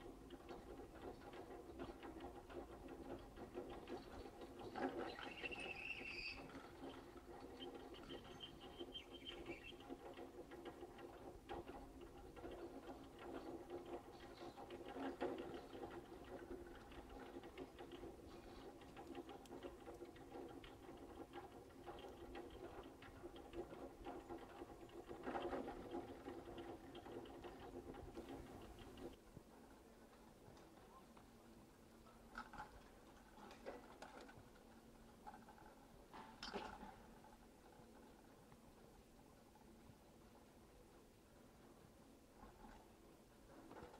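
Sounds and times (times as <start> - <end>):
haul rope rattling over rollers: 0.0 - 29.2.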